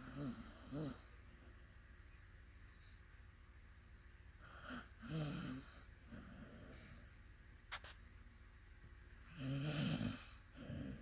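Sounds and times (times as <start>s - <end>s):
dog snoring: 0.0s - 1.2s, 4.4s - 7.0s, 9.2s - 11.0s.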